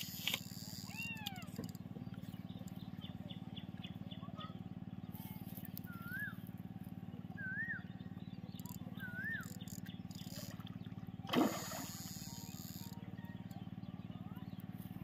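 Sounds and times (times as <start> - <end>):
steady low hum: 0.0 - 15.0
bird whistles: 5.8 - 6.4, 7.4 - 7.9, 8.9 - 9.6
fish splashing at surface: 11.3 - 12.6.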